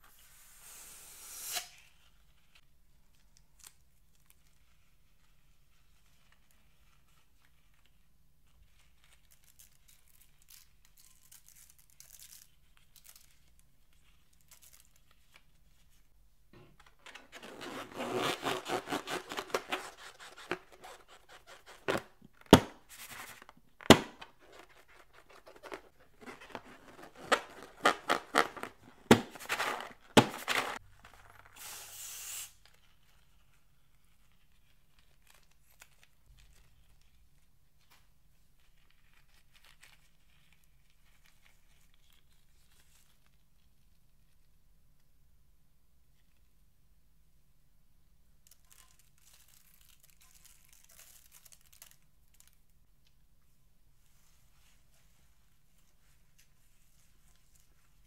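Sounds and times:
rubber balloon crackling and crinkling: 4.0s - 31.8s, 32.5s - 37.9s, 48.4s - 52.8s
foam beads crackling: 18.6s - 32.6s, 48.4s - 52.6s
balloon snapping: 21.8s - 24.7s, 26.9s - 30.8s
short hiss: 31.6s - 32.6s.

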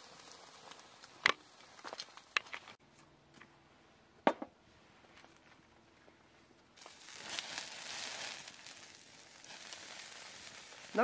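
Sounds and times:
chicken sizzling on a grill: 0.0s - 2.4s, 6.8s - 11.0s.

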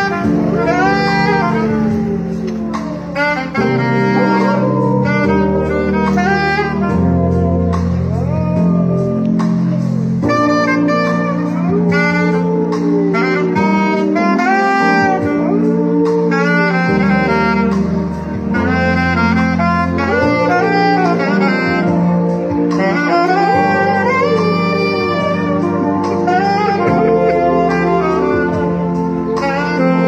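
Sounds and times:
dog howling: 0.0s - 17.6s, 18.8s - 30.0s
low musical accompaniment: 0.0s - 30.0s
saxophone jazzy melody: 0.0s - 30.0s.

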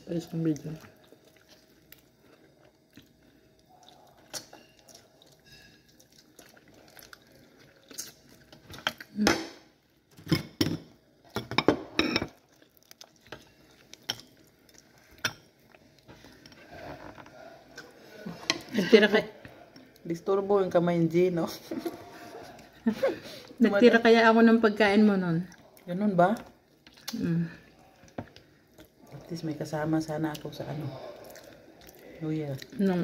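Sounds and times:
chewing: 0.5s - 9.1s, 12.3s - 18.7s, 25.4s - 29.4s, 30.3s - 33.0s.

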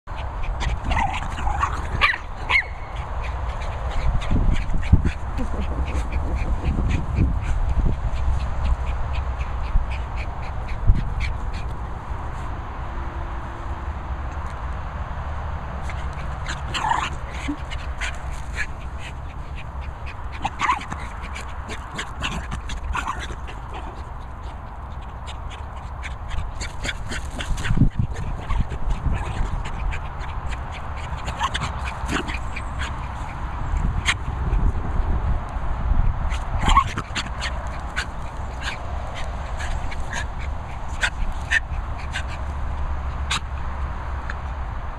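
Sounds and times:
steady low rumble: 0.1s - 44.9s
small dog yapping: 0.6s - 7.6s, 15.9s - 24.0s, 26.3s - 34.3s, 36.3s - 42.4s, 43.3s - 43.5s.

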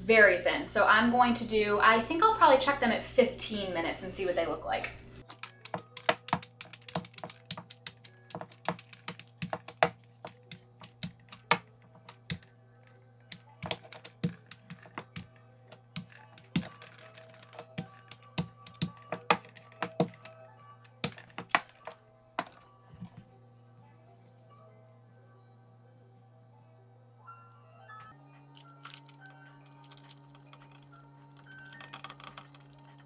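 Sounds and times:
soft background music: 0.0s - 33.0s
rolling pin clacking on countertop: 5.3s - 12.4s, 13.3s - 20.4s.

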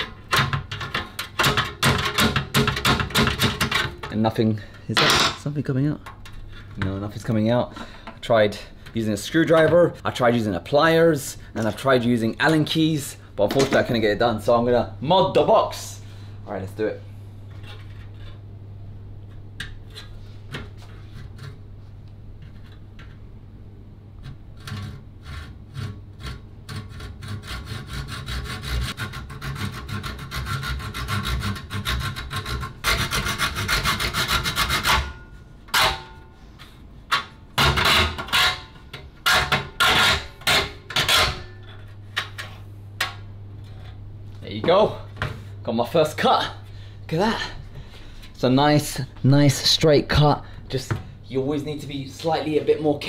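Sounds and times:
hacksaw cutting: 24.6s - 35.2s.

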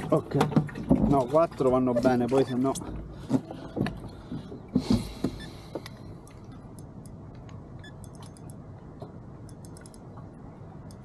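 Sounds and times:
light clicks and ticks: 5.2s - 8.6s, 9.4s - 11.0s.

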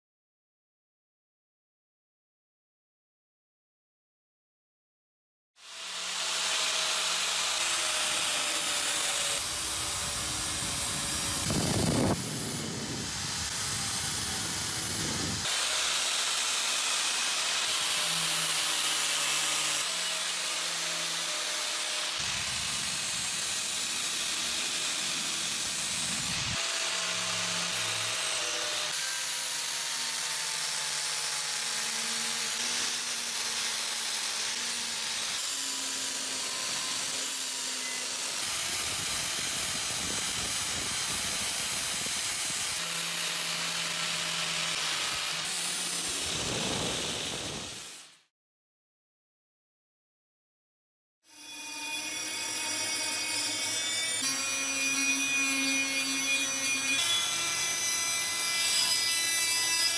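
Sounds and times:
grinder motor whine: 7.5s - 15.5s, 35.9s - 47.8s.

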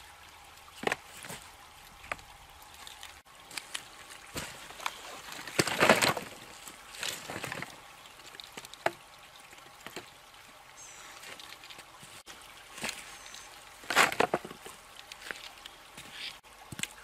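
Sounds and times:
branches clattering onto woodpile: 3.5s - 7.7s, 13.8s - 15.4s.

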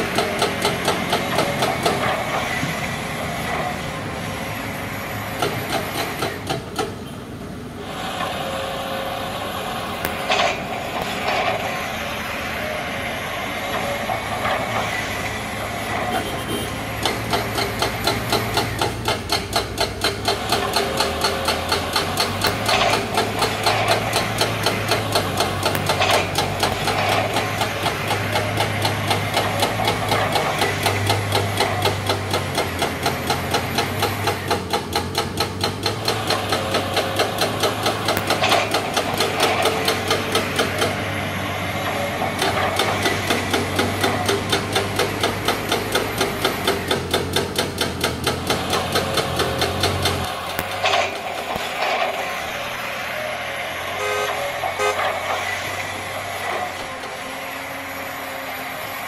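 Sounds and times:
excavator humming: 0.0s - 59.0s.

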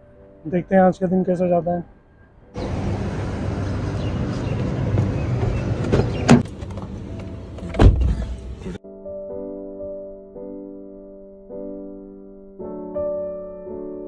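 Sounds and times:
piano music: 0.0s - 14.0s
traffic noise: 2.5s - 8.8s
car door shutting thud: 4.9s - 6.5s, 7.6s - 8.4s
car door opening click: 5.4s - 8.5s.

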